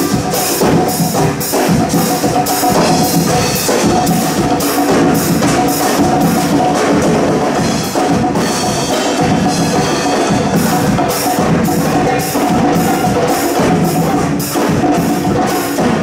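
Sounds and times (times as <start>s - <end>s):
congas and hand drums: 0.0s - 16.0s
drum kit: 0.0s - 16.0s.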